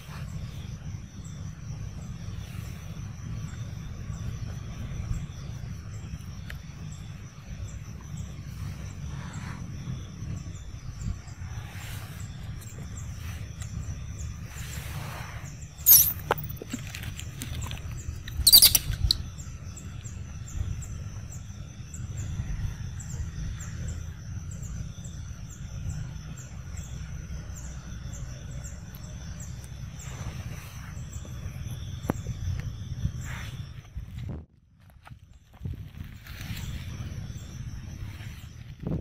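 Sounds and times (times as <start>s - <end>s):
monkey squeals: 15.8s - 16.5s, 18.4s - 19.2s
quick repeating chirp: 15.9s - 16.3s.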